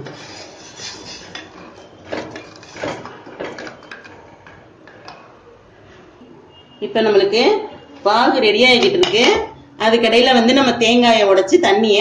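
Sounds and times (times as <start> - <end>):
wooden spatula scraping metal pot: 0.0 - 5.1.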